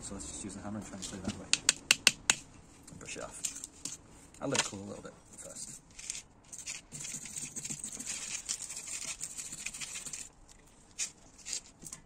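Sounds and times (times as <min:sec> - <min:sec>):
wire brush scrubbing metal: 0:05.4 - 0:10.3.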